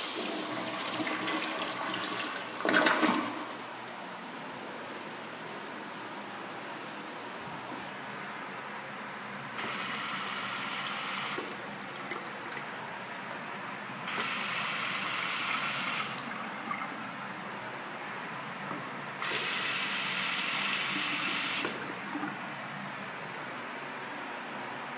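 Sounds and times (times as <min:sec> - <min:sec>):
faucet water running into sink: 0:09.6 - 0:12.3, 0:14.1 - 0:16.3, 0:19.2 - 0:22.4.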